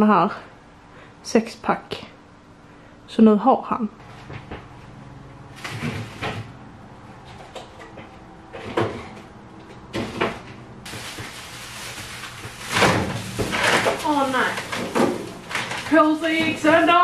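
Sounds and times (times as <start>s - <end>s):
groceries clunking on shelves: 5.5s - 6.6s, 7.2s - 17.0s.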